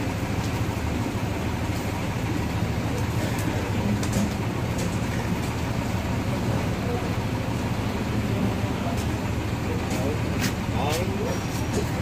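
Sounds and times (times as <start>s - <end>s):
bus engine idling: 0.0s - 12.0s.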